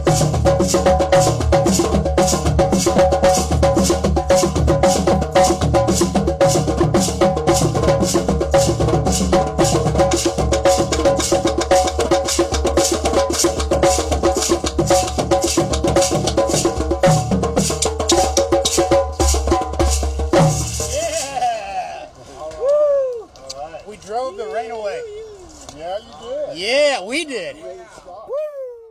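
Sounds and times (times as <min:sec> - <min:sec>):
hand drums playing fast rhythm: 0:00.0 - 0:21.4.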